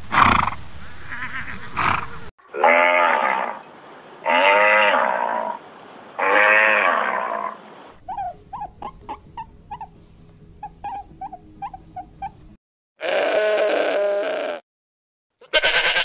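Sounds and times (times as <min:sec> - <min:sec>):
long loud animal cries: 0:02.5 - 0:03.6, 0:04.2 - 0:05.6, 0:06.2 - 0:08.3, 0:13.0 - 0:14.6, 0:15.4 - 0:16.0.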